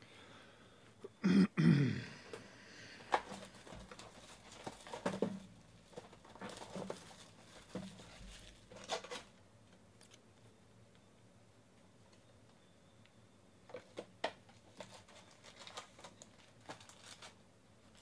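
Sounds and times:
person coughing: 1.2 - 2.3
plastic shrink wrap crinkling: 3.1 - 9.4, 14.6 - 18.0.

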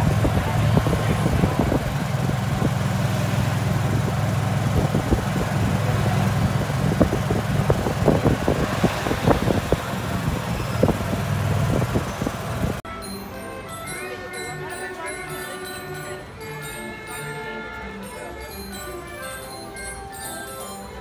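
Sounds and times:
golf cart motor hum: 0.0 - 12.8
wind and road noise: 0.0 - 12.8.

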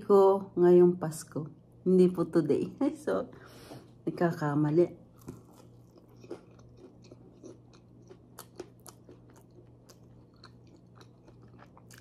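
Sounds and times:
faint low hum: 0.0 - 12.0
person chewing food: 5.1 - 12.0.

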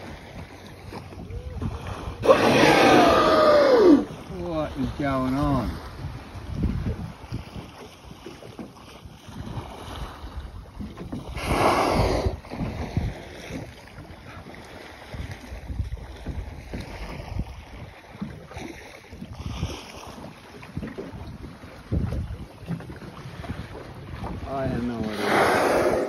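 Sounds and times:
water slapping against boat: 0.0 - 26.0
wind buffeting microphone: 0.0 - 26.0
whale blowing: 1.2 - 4.2, 11.3 - 12.7, 25.0 - 26.0.

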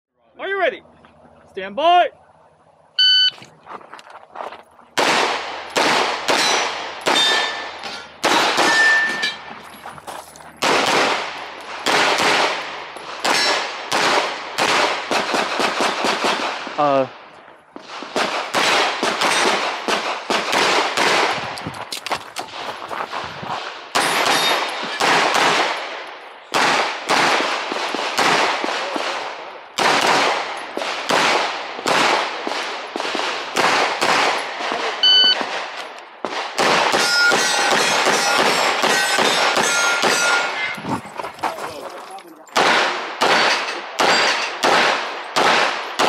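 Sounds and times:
pistol shots: 5.0 - 9.4, 10.6 - 16.8, 17.8 - 21.5, 23.9 - 40.5, 42.5 - 46.0
metallic ringing: 6.4 - 9.8, 37.0 - 41.2.

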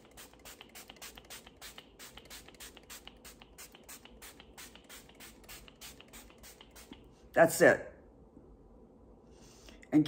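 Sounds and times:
spray bottle hissing puffs: 0.0 - 7.0.

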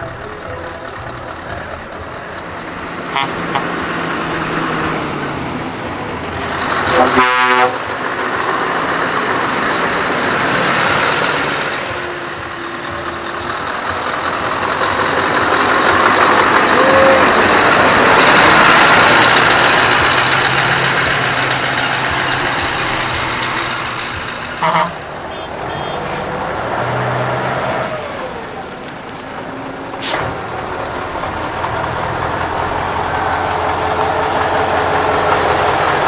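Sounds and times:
diesel truck driving past: 0.0 - 36.0
air horn blast: 3.1 - 3.7, 6.9 - 7.8, 24.6 - 26.3.

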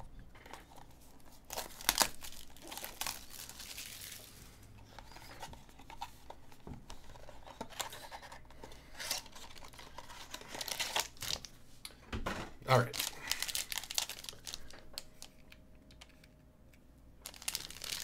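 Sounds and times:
plastic shrink-wrap crinkling and tearing: 0.7 - 4.6, 8.9 - 11.5, 12.7 - 16.0, 17.2 - 18.0.

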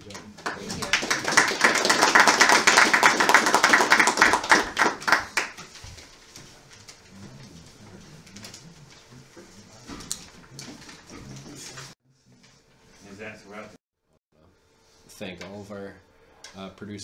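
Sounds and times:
audience applauding: 0.2 - 5.6.

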